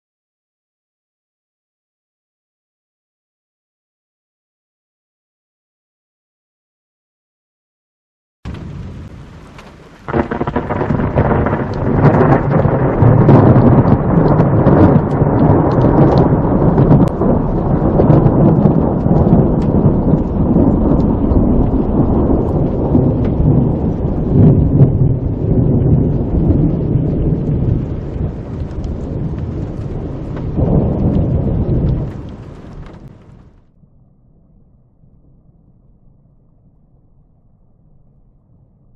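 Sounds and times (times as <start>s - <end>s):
thunder rumbling: 8.5s - 33.8s.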